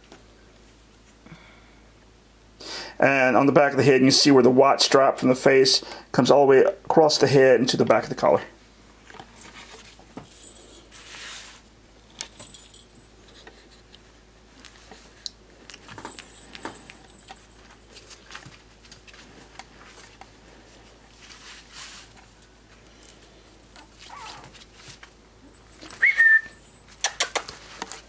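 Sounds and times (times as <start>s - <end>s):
fabric rustling and scuffling: 9.0s - 26.2s.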